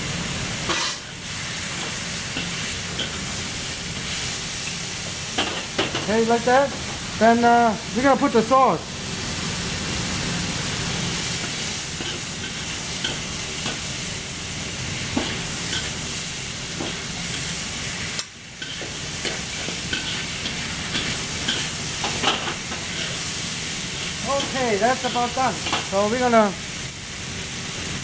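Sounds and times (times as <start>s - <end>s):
food sizzling in a wok: 0.0s - 28.0s
metal spatula scraping wok: 0.7s - 1.1s, 11.4s - 13.7s, 18.6s - 25.9s.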